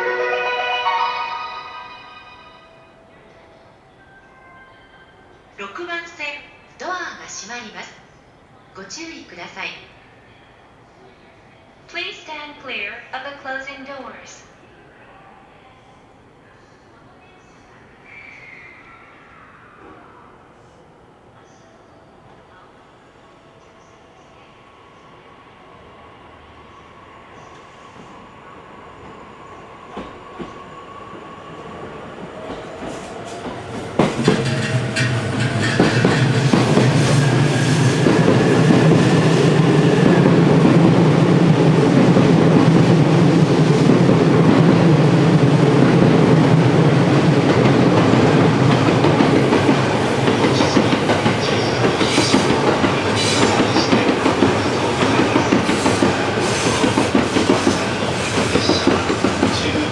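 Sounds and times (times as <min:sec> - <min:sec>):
train wheel and motor noise: 0:29.8 - 0:59.9.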